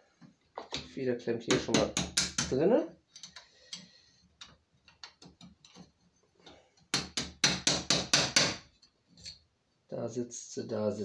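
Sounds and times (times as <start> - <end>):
small hammer tapping metal: 1.5 - 2.6.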